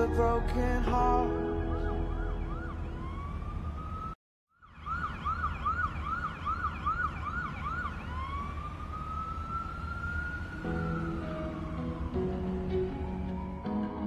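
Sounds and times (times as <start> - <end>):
siren-like electronic sound: 1.2 - 8.4.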